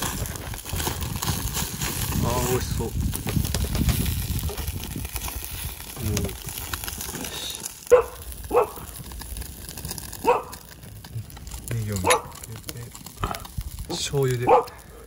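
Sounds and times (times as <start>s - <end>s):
dog barking: 7.9s - 8.9s, 10.2s - 10.6s, 12.0s - 12.4s, 14.4s - 15.0s.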